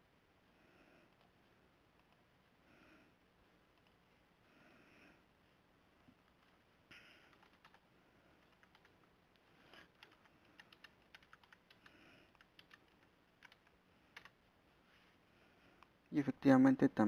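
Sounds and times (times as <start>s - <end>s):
faint keyboard typing: 1.0s - 2.6s, 3.4s - 4.1s, 6.0s - 14.5s.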